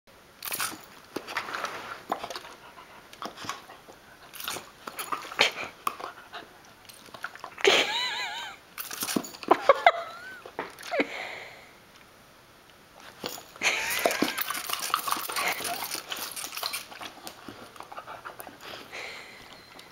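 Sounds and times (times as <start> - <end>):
puppy whining: 13.6 - 19.9.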